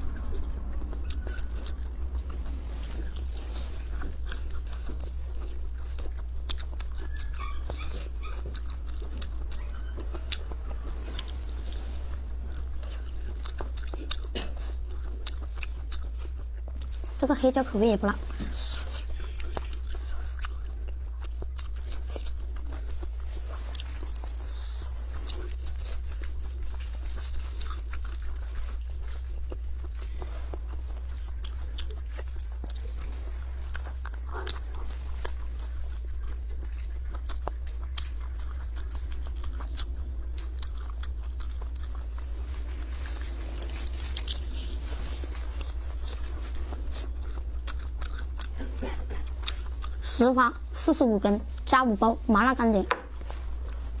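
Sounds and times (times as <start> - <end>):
chewing and biting sausage: 0.0 - 54.0
steady low hum: 0.0 - 54.0.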